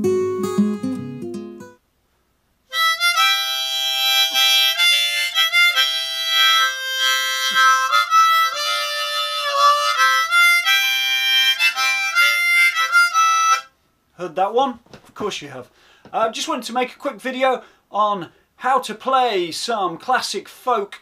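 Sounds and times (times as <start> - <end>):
acoustic guitar strum: 0.0 - 1.8
harmonica playing folk melody: 2.7 - 13.7.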